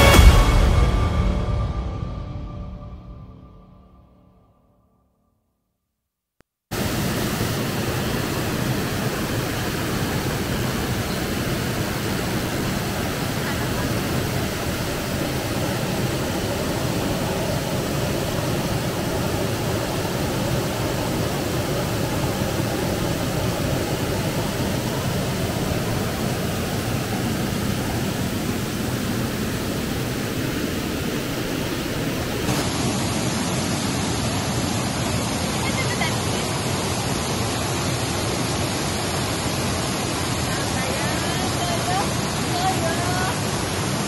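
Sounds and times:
waterfall rushing: 0.0 - 1.9, 6.7 - 44.0.

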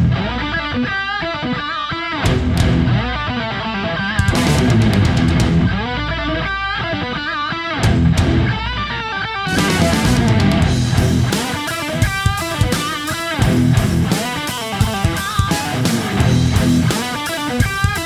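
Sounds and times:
steady bass: 0.0 - 1.0, 2.2 - 3.4, 4.2 - 6.7, 7.8 - 17.0
lead guitar: 0.0 - 18.0
rock music: 0.0 - 18.0.

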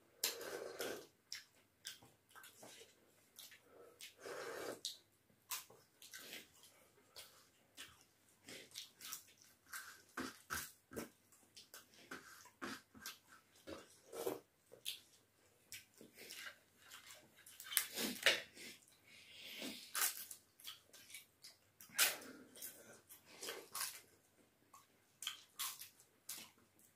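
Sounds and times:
chewing crisp crunches: 24.8 - 26.6.

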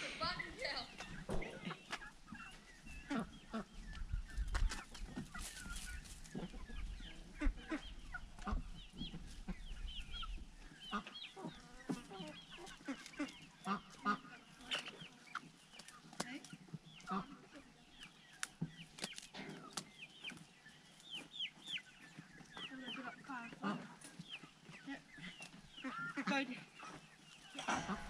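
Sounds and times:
poultry clucking and chirping: 0.0 - 28.0.

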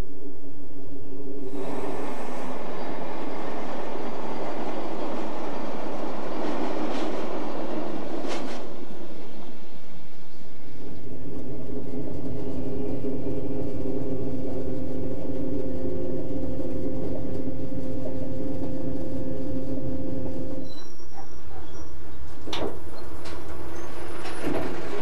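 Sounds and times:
electric train motor hum: 1.1 - 21.0
train wheels rumbling: 1.4 - 25.0.

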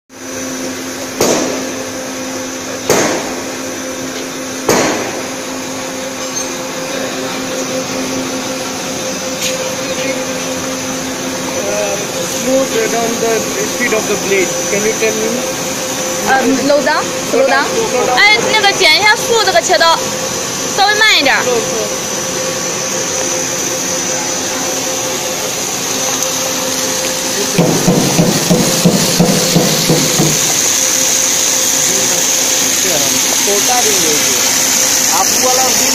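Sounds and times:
machine hum: 0.1 - 35.9
sharp metallic knocks: 27.6 - 30.5.

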